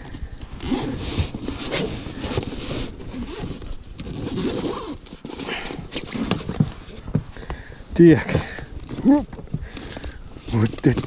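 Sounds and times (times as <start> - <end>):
zipper being pulled open: 0.0 - 7.0
fabric bag rustling: 0.5 - 7.0.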